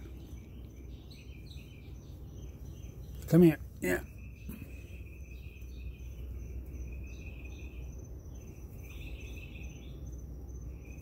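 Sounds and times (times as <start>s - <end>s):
crickets chirping: 0.0s - 11.0s
insect trill: 0.0s - 11.0s
steady low rumble: 0.0s - 11.0s.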